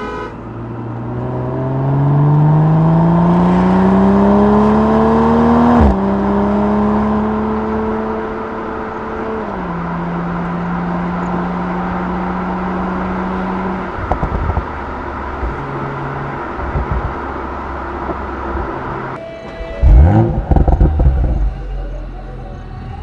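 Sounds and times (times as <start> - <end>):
engine revving: 0.0 - 19.2, 19.8 - 23.0
car exhaust cruising drone: 0.0 - 23.0
exhaust crackles: 0.8 - 19.2, 19.8 - 23.0
exhaust pops and burbles: 14.0 - 14.8, 16.6 - 17.2, 19.8 - 21.5.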